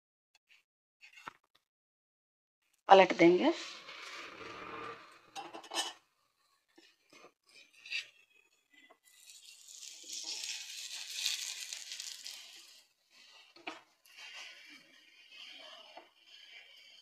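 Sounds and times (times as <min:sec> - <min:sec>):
oil sizzling: 0:09.0 - 0:17.0.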